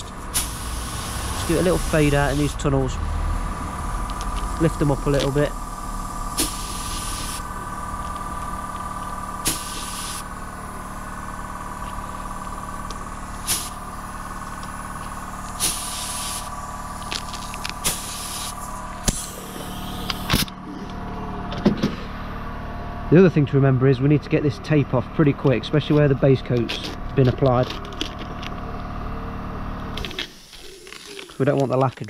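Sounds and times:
air compressor humming: 0.0 - 31.8
spray gun hissing bursts: 0.2 - 2.8, 3.6 - 17.0, 17.8 - 20.3.

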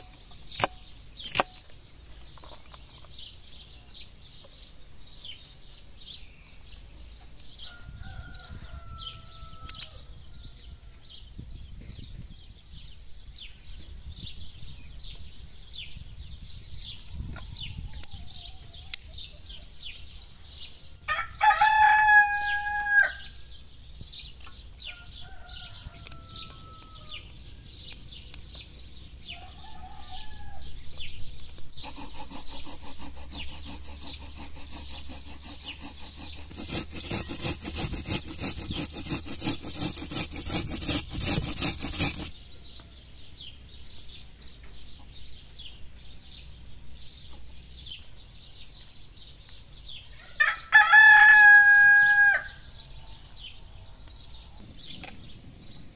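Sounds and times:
birdsong: 0.0 - 55.9
rooster crowing: 7.6 - 10.9, 21.1 - 23.3, 24.9 - 27.2, 29.4 - 30.8, 50.2 - 52.6
vegetable grated on box grater: 31.8 - 42.3.

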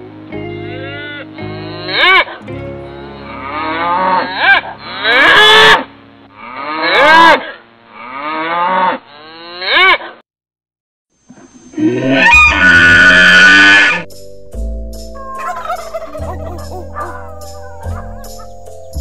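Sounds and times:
cows mooing: 3.3 - 5.8, 6.4 - 10.0, 11.8 - 14.0.

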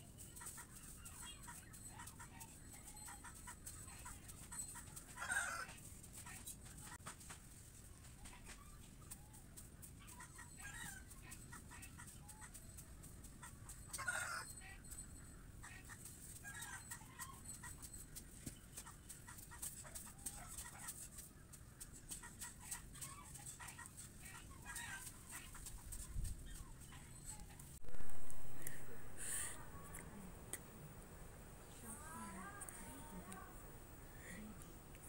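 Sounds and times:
chickens clucking: 0.0 - 31.0.

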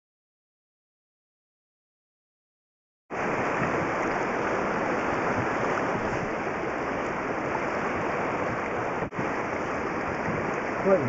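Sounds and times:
fast-flowing river water: 3.1 - 11.0
wind on microphone: 3.2 - 11.0.

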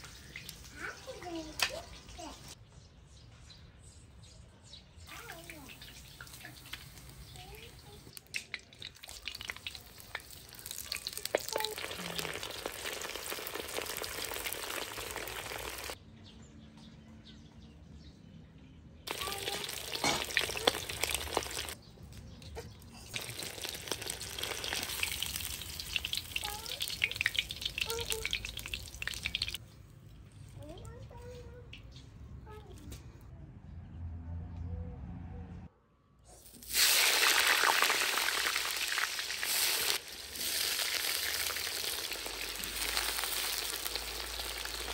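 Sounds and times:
food frying in hot oil: 5.2 - 16.0, 19.1 - 21.8, 23.2 - 29.6, 36.6 - 44.9.

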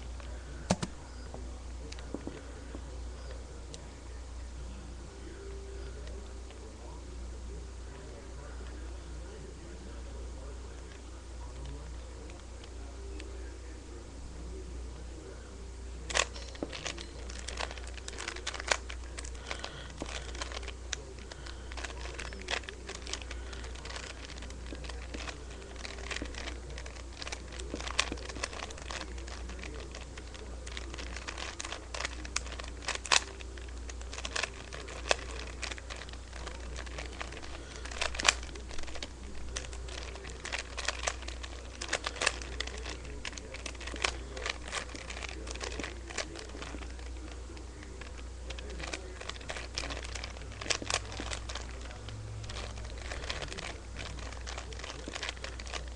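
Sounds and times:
steady low hum: 0.0 - 55.9
puzzle cube plastic clicks: 16.1 - 47.2.

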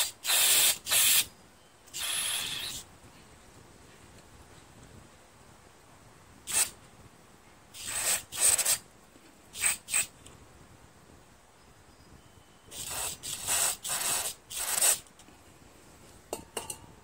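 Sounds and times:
aerosol spray hissing: 0.0 - 1.3, 1.9 - 2.8, 7.7 - 8.8, 9.5 - 10.1, 12.7 - 15.0.

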